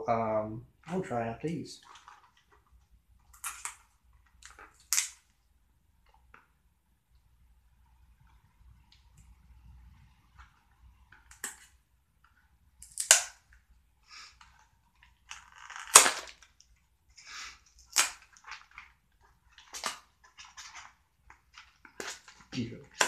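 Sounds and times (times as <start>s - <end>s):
cardboard crinkling: 1.8s - 5.4s, 17.6s - 23.0s.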